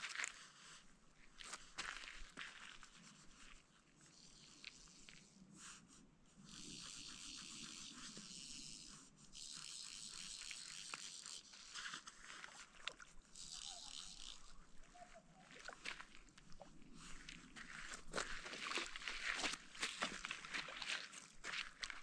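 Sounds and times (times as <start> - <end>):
fly reel buzzing: 6.5 - 15.2.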